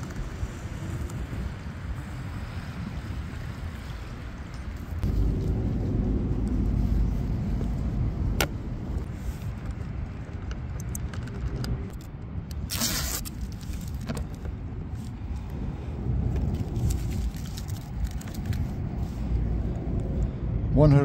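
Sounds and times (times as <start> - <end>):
wind rumble on microphone: 0.0 - 21.0
masking tape ripping: 12.5 - 14.1.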